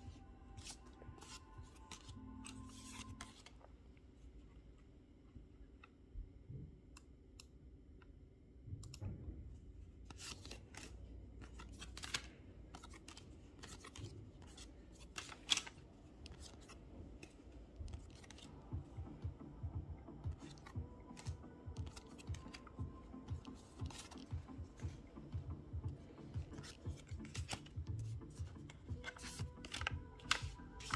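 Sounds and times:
cards sliding and rubbing: 0.6 - 3.5, 10.1 - 18.6, 20.3 - 30.9
card flicks and clicks: 28.6 - 30.9.

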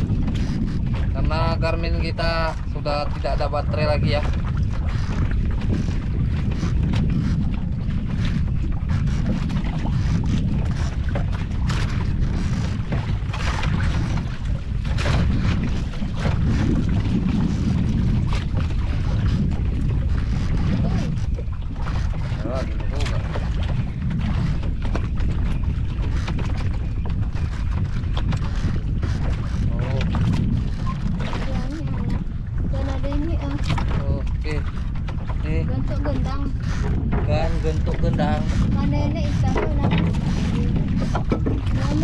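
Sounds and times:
small waves slapping wooden boat: 0.0 - 42.0
wind buffeting microphone: 0.0 - 42.0.

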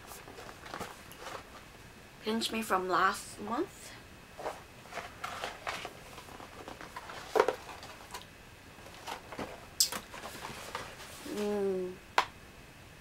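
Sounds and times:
cardboard box rustling: 0.0 - 1.6, 4.4 - 8.2, 8.8 - 11.5.

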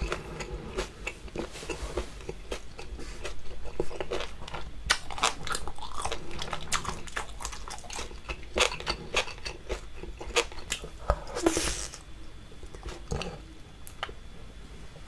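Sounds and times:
wet chewing and mouth clicks: 0.0 - 10.9.

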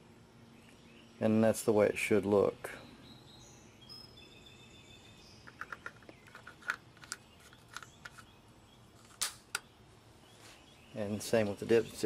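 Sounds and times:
faint bird chirps: 2.6 - 6.5
plastic cap clicking: 5.4 - 8.3.

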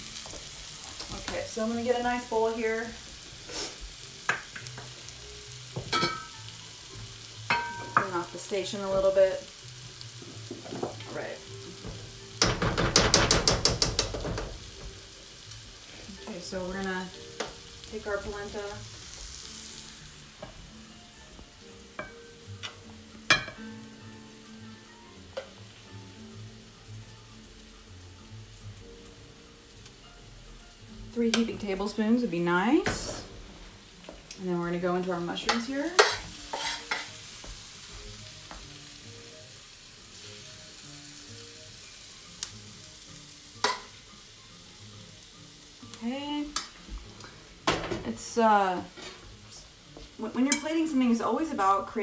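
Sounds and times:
hot pan hissing: 0.0 - 30.0, 30.7 - 52.0
spoon clinking against pan: 5.9 - 6.4, 7.5 - 8.2, 35.5 - 37.1, 43.6 - 43.9
metal spoon scraping saucepan: 36.0 - 37.1.

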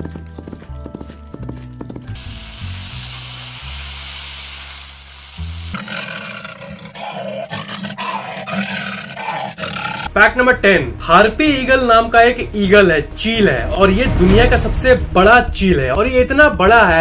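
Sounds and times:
imitated horse hoofbeats: 0.0 - 2.4
background music: 0.0 - 17.0
hiss: 2.2 - 5.9
voice imitating lion roar: 5.7 - 10.1.

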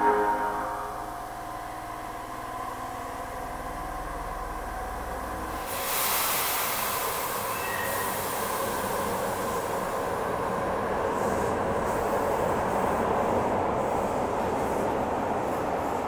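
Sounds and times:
subway train running noise: 0.0 - 16.0
faint wheel squeal: 7.4 - 8.3.

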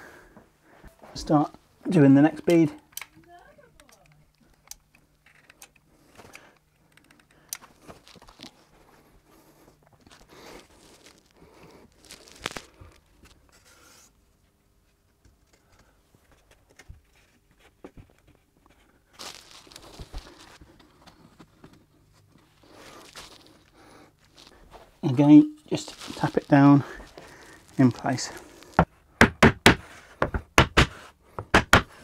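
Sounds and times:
rustling: 7.7 - 14.1, 17.0 - 29.0.

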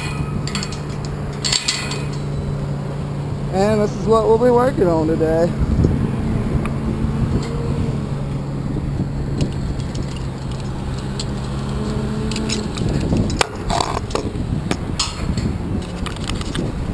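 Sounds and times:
metal hooks clinking on steel: 0.0 - 2.7
steady low hum: 0.0 - 16.9
wind rumbling on microphone: 0.0 - 16.9.

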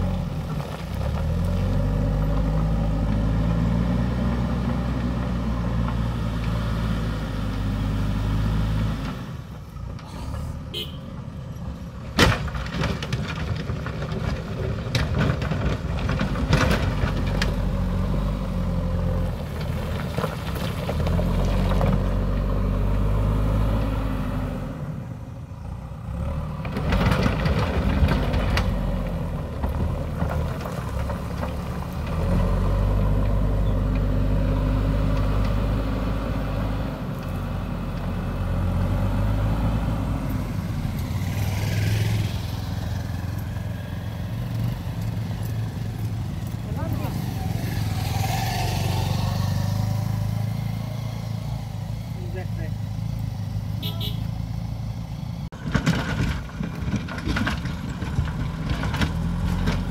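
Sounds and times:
diesel engine working under load: 0.0 - 59.9
clatter of rocks: 12.1 - 18.0, 19.3 - 22.2, 26.6 - 32.5, 55.6 - 59.9
motorcycle engine: 33.0 - 59.9.

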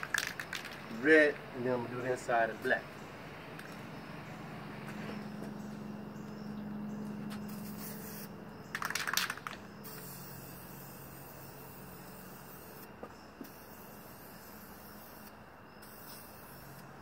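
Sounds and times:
steady low hum: 0.0 - 17.0
aerosol spray can hissing: 7.4 - 17.0.

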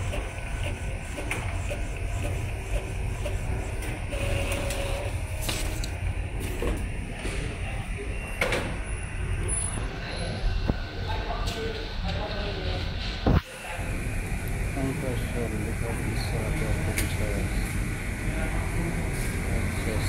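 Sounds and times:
printer mechanism running: 0.0 - 9.8, 13.0 - 20.0.

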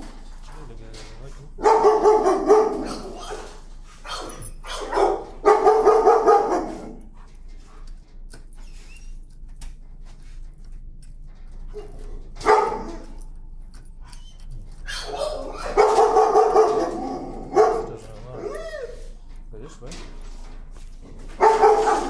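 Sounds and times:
dogs barking: 1.5 - 7.3, 11.7 - 19.0, 21.2 - 22.0.

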